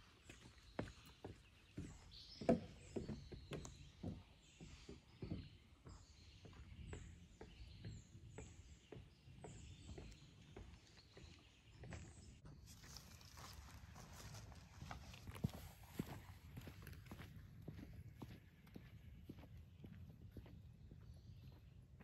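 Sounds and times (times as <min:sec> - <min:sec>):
small birds chirping: 0:00.0 - 0:22.0
footsteps on wooden stairs: 0:00.3 - 0:12.4.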